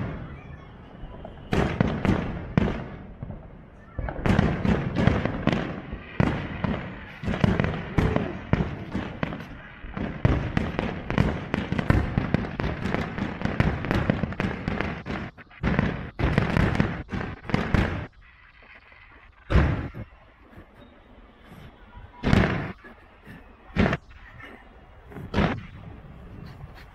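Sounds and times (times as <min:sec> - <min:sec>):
firework shells bursting: 0:04.1 - 0:20.8.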